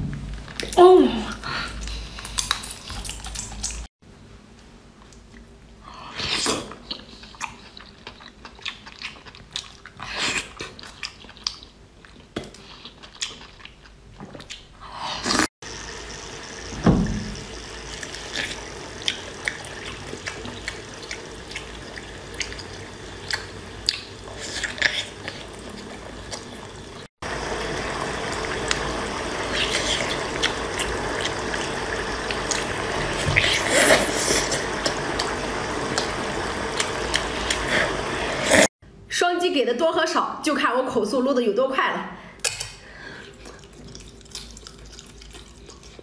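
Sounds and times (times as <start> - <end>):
wet chewing and slurping: 1.8 - 3.9, 6.4 - 15.5, 17.7 - 26.9, 28.2 - 38.7, 43.2 - 46.0.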